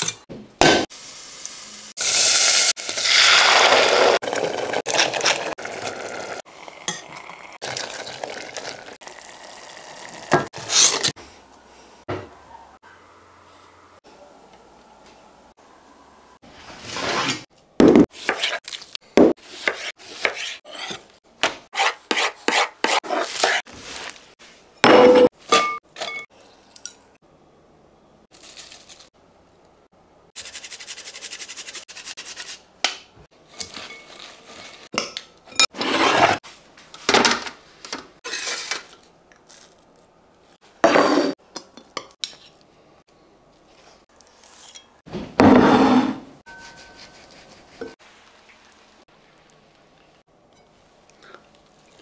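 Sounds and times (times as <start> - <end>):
dishes and utensils clinking: 46.4 - 47.2.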